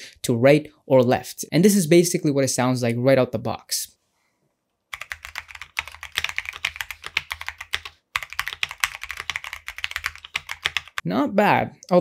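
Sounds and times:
fast typing on mechanical keyboard: 0:04.9 - 0:11.0.

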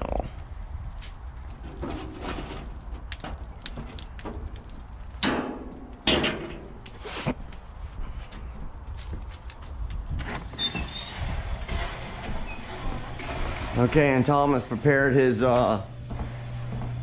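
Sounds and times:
knocks and clanks at grill: 0:05.2 - 0:06.8.

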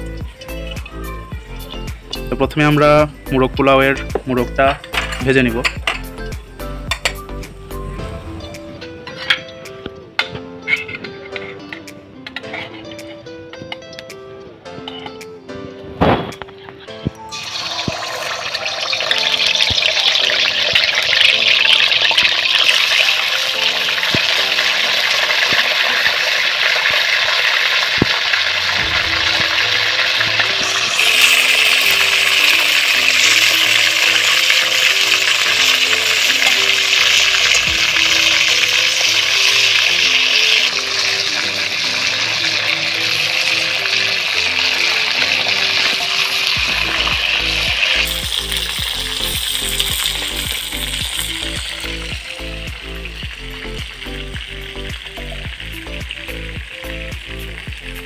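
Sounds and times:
meat sizzling in hot oil: 0:17.3 - 0:58.0.

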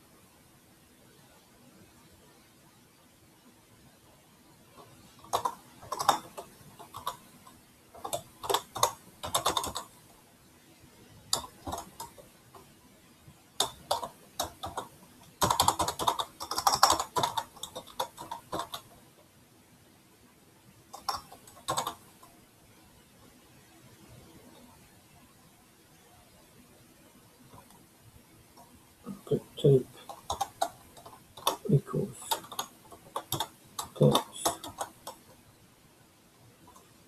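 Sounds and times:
computer keyboard typing: 0:05.2 - 0:10.0, 0:11.3 - 0:12.7, 0:13.6 - 0:19.0, 0:20.9 - 0:22.3, 0:28.6 - 0:35.3, 0:36.7 - 0:37.0.

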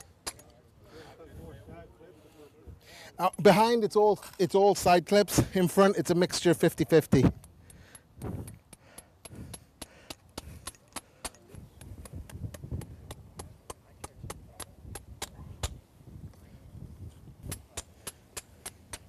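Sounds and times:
hammer tapping steel: 0:07.3 - 0:15.8.

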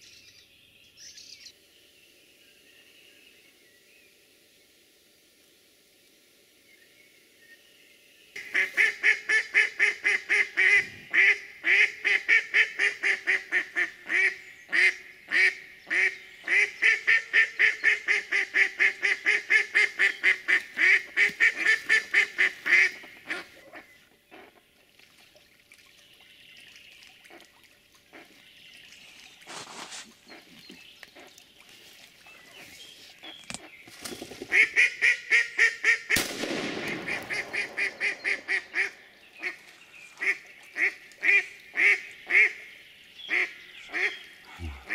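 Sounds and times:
duck quacking: 0:36.9 - 0:39.6.

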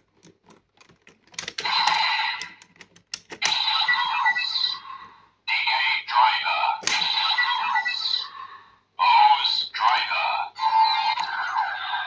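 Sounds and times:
toy electronic sound effects: 0:01.6 - 0:02.5, 0:03.4 - 0:04.9, 0:05.5 - 0:08.4, 0:09.0 - 0:12.0.

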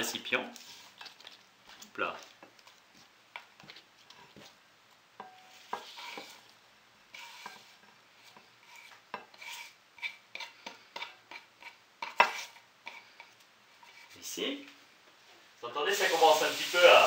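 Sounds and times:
rustling and scraping of endive: 0:00.5 - 0:04.6, 0:05.4 - 0:10.6, 0:11.3 - 0:14.3.

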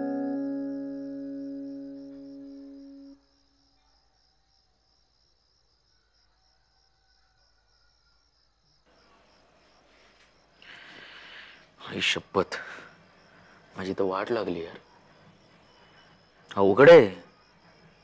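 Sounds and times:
held music chord: 0:00.0 - 0:03.2
crickets chirping: 0:00.0 - 0:18.0.

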